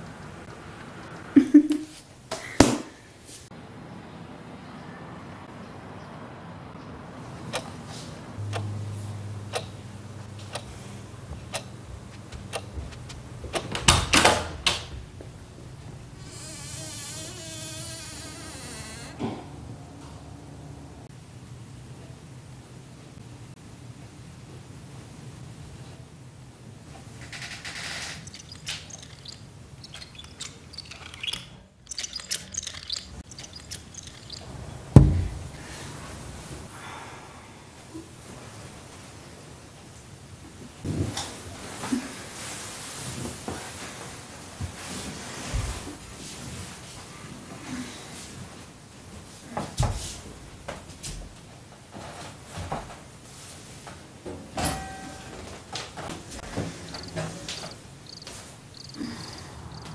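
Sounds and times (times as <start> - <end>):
clock ticking: 8.5 - 8.7, 9.5 - 9.8, 10.4 - 10.8, 11.4 - 13.8
knocks and rattling: 11.3 - 16.2, 27.1 - 35.6
wheelchair squeaking on wooden floor: 16.0 - 19.2, 27.2 - 34.9, 56.1 - 59.0.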